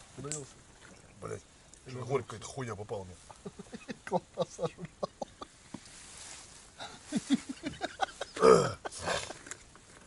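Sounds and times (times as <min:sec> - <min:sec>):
man clearing throat: 0:08.3 - 0:09.3
man muttering: 0:08.3 - 0:09.4.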